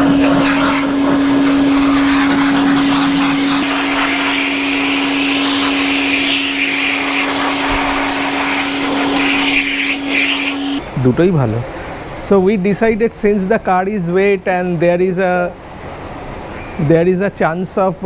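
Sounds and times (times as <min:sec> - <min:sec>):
vacuum cleaner running: 0:00.0 - 0:10.8.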